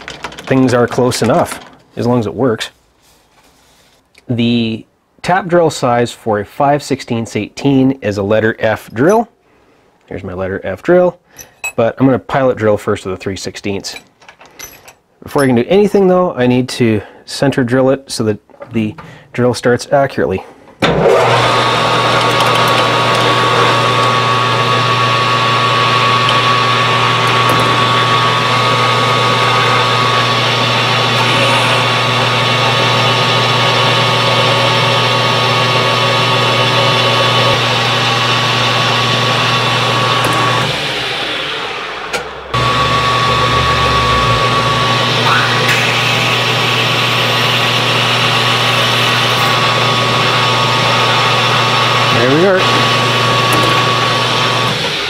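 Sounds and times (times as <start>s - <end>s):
metal lathe drilling with whine: 21.0s - 55.0s.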